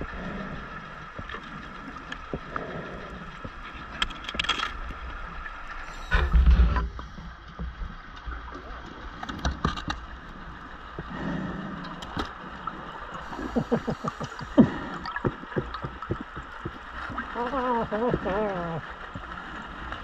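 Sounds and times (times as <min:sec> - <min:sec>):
underwater bubbles gurgling: 0:00.0 - 0:20.0.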